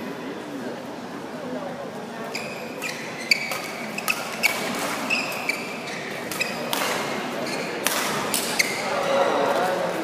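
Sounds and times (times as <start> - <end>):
murmur of large hall: 0.0 - 10.0
shoes squeaking on court: 2.3 - 9.6
rackets hitting shuttlecock: 2.8 - 8.9.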